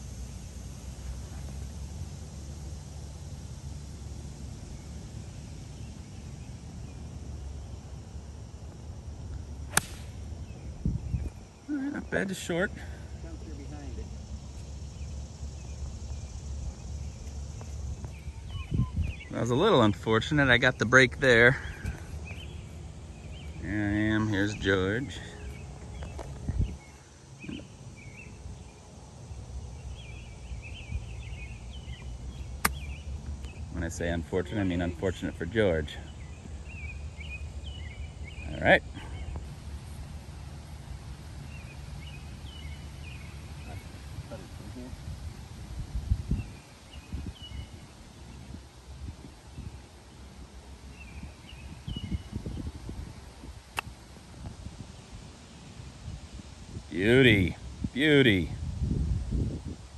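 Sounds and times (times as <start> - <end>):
small birds chirping: 3.9 - 58.9
faint chirps: 9.7 - 28.9, 41.4 - 45.2
wind rumble on microphone: 10.0 - 11.7, 15.5 - 20.4, 25.6 - 27.6, 41.0 - 59.9.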